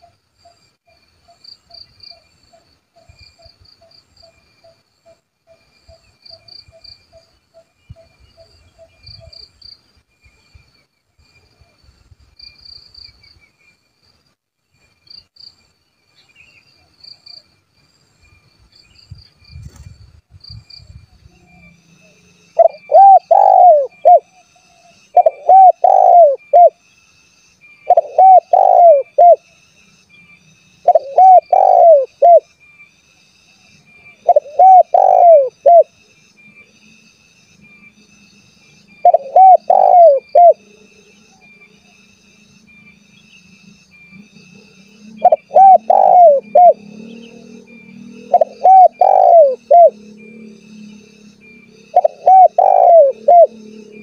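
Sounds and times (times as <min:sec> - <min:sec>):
dove cooing: 0:22.6 - 0:24.3, 0:25.1 - 0:26.8, 0:27.9 - 0:29.4, 0:30.8 - 0:32.4, 0:34.2 - 0:35.9, 0:39.0 - 0:40.7, 0:45.2 - 0:50.8, 0:51.6 - 0:54.0.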